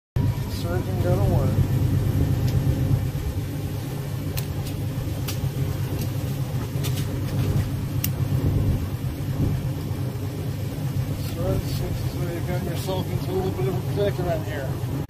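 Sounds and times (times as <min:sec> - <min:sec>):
boat engine idling: 0:00.2 - 0:15.0.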